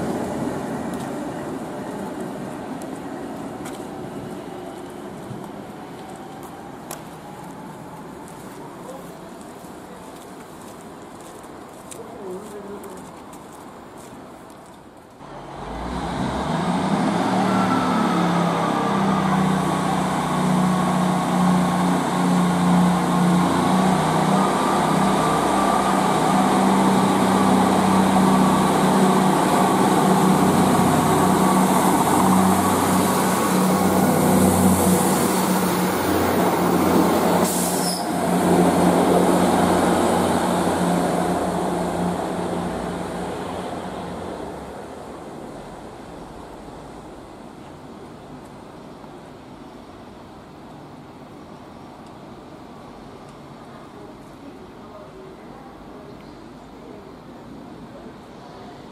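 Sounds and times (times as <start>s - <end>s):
diesel train engines humming: 0.0s - 10.2s, 15.2s - 51.5s.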